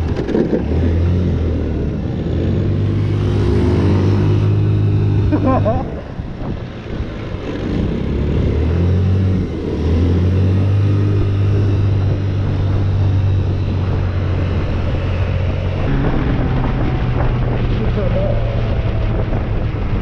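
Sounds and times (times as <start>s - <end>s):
car engine drone inside cabin: 0.0s - 20.0s.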